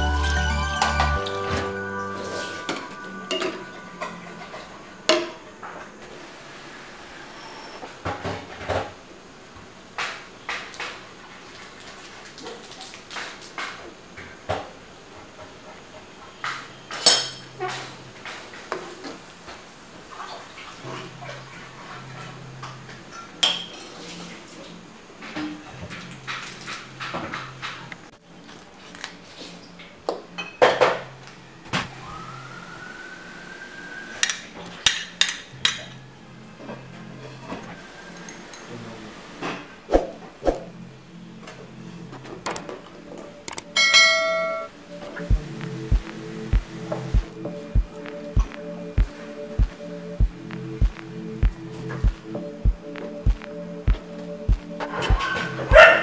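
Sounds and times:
utensils clinking on wok and bowls: 0:00.0 - 0:05.4.

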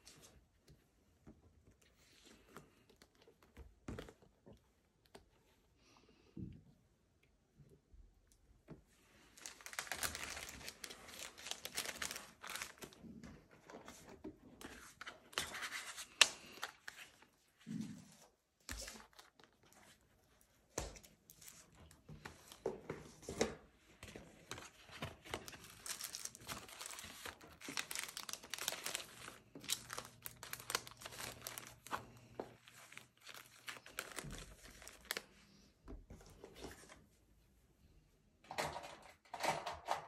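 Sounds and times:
plastic and paper crinkling: 0:09.2 - 0:17.4, 0:18.0 - 0:37.0.

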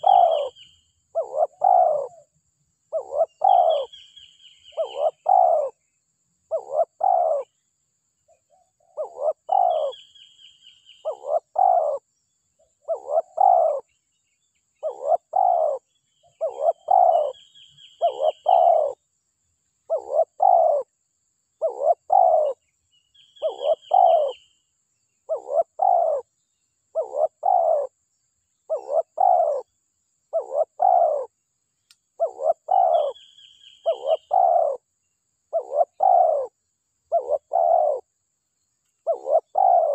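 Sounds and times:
bird high trill: 0:00.0 - 0:02.2, 0:03.0 - 0:05.7, 0:09.0 - 0:10.3, 0:14.8 - 0:15.8, 0:16.4 - 0:19.0, 0:23.4 - 0:24.4, 0:32.2 - 0:34.8, 0:39.1 - 0:39.9
dove cooing: 0:00.0 - 0:02.3, 0:02.9 - 0:05.8, 0:06.5 - 0:07.5, 0:08.5 - 0:10.2, 0:11.0 - 0:12.1, 0:12.8 - 0:13.9, 0:14.8 - 0:19.0, 0:19.9 - 0:20.9, 0:21.6 - 0:22.6, 0:23.4 - 0:24.4, 0:25.3 - 0:26.3, 0:26.9 - 0:28.0, 0:28.7 - 0:29.7, 0:30.3 - 0:31.4, 0:32.2 - 0:34.9, 0:35.5 - 0:38.1, 0:39.0 - 0:39.9.

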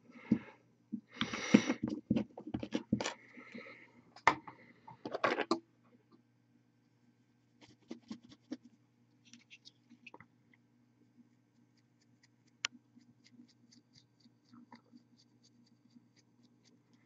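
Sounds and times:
paintbrush scratching on plastic: 0:07.6 - 0:10.1, 0:11.3 - 0:17.0.

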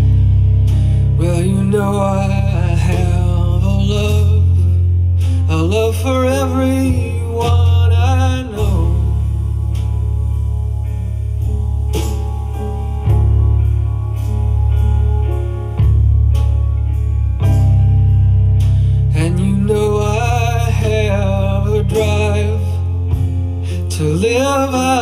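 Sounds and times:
steady bass line: 0:00.0 - 0:25.0
person singing: 0:01.0 - 0:10.7, 0:19.1 - 0:25.0.

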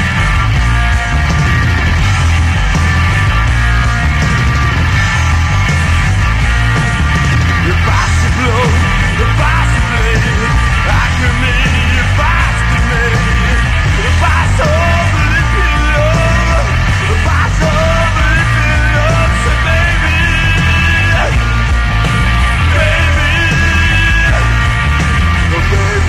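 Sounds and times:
punk rock band playing: 0:00.0 - 0:26.0
shouted vocals: 0:07.6 - 0:21.4, 0:22.5 - 0:24.6.

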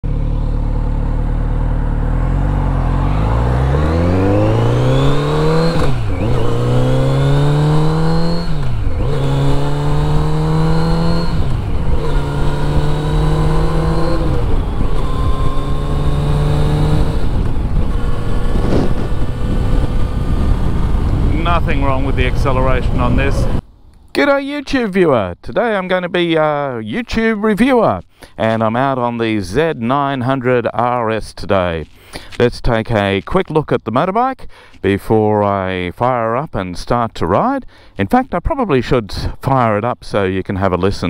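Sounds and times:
motorcycle engine accelerating: 0:00.0 - 0:23.6
wind rush: 0:07.8 - 0:23.6.

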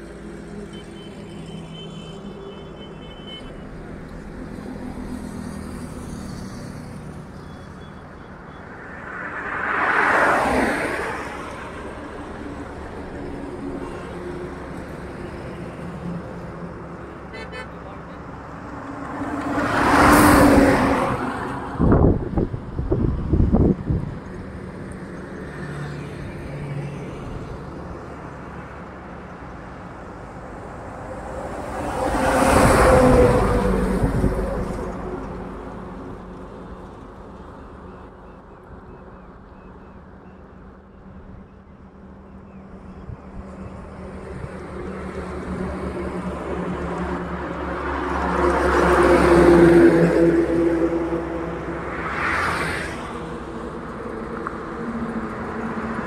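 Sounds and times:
trucks passing on highway: 0:00.0 - 0:56.0.

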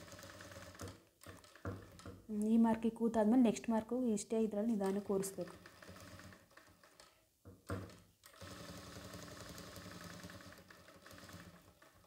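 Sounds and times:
sewing machine stitching: 0:00.0 - 0:02.2, 0:04.8 - 0:07.2, 0:07.8 - 0:12.0.

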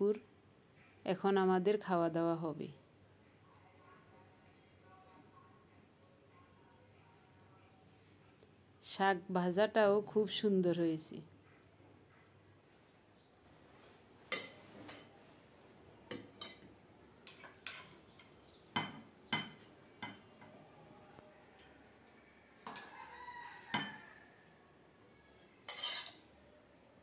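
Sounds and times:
spoon clinking against plates: 0:14.3 - 0:15.0, 0:16.1 - 0:20.5, 0:23.7 - 0:24.1, 0:25.6 - 0:26.3.

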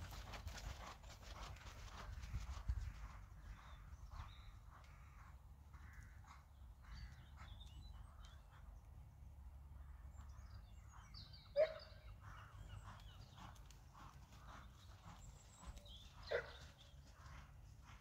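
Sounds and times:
horse hooves thudding: 0:00.0 - 0:08.7
wind rumble on microphone: 0:01.8 - 0:04.6
small dog barking: 0:11.6 - 0:11.8.

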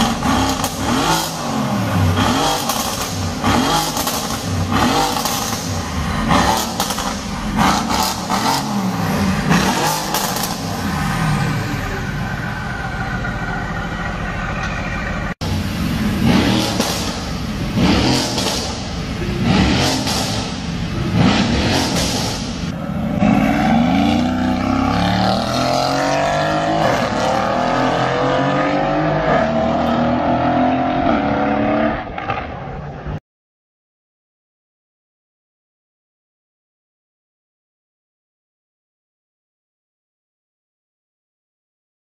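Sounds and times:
car engine revving: 0:00.0 - 0:32.6.

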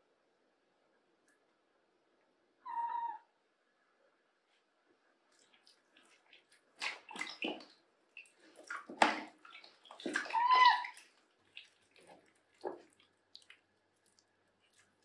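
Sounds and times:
water splashing in plastic tub: 0:05.3 - 0:15.0.

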